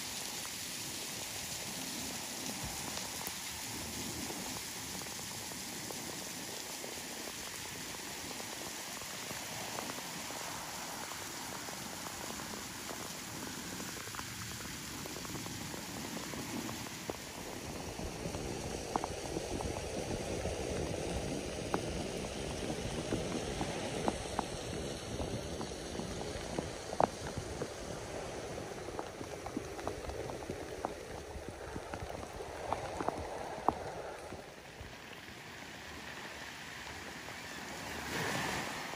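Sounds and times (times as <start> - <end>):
rain falling on rock: 0.0 - 38.9.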